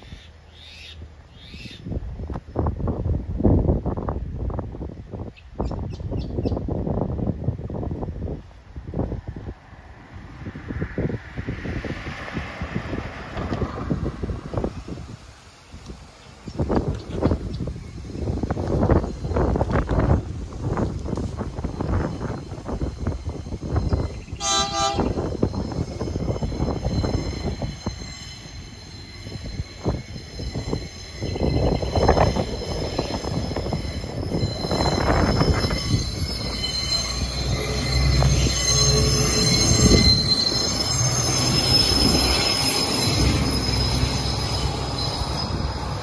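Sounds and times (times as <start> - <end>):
train wheels squealing: 16.2 - 46.0
locomotive horn blast: 24.4 - 25.3.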